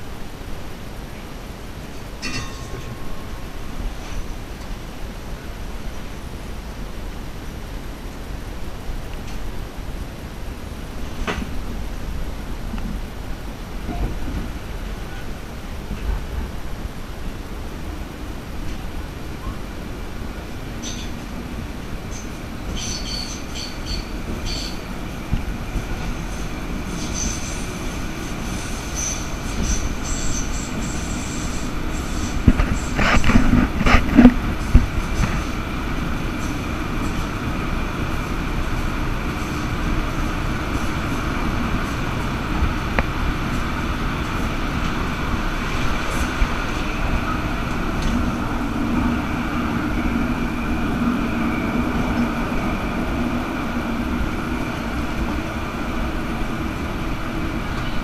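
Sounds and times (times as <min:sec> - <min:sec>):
tram wheels rumbling on rail: 0:00.0 - 0:58.0
faint high squeal: 0:22.1 - 0:24.9.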